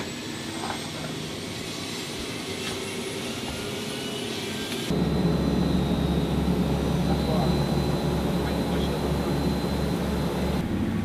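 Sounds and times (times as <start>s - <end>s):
turboprop engine drone in cabin: 4.6s - 11.0s.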